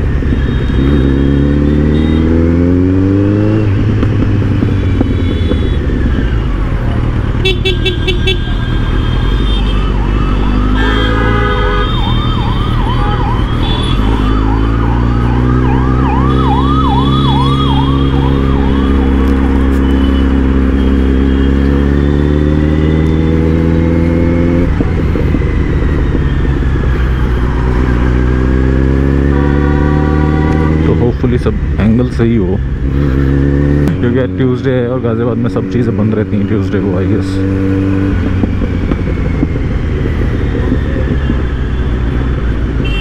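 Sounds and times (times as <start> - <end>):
horn honking: 0.2 - 2.6, 4.8 - 6.2, 7.4 - 14.6, 15.9 - 22.2, 28.9 - 30.8, 42.8 - 43.0
wailing siren: 8.5 - 30.9, 37.8 - 42.6.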